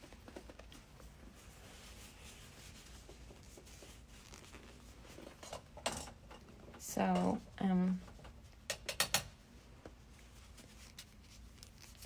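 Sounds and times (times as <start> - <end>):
faint soft scratching: 0.0 - 5.6, 9.7 - 12.0.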